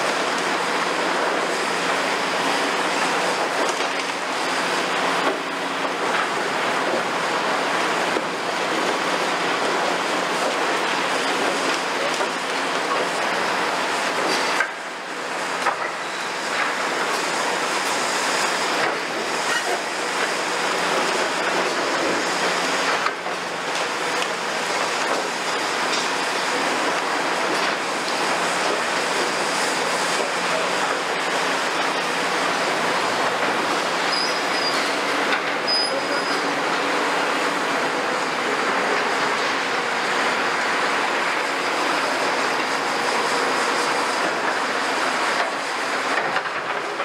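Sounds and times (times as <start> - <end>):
diesel engines running: 0.0 - 47.0
high metallic squeals: 34.1 - 34.9, 35.7 - 36.4.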